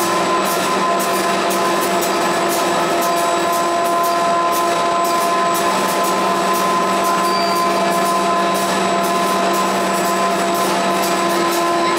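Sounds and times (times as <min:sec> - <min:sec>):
printing press hum and whine: 0:00.0 - 0:11.9.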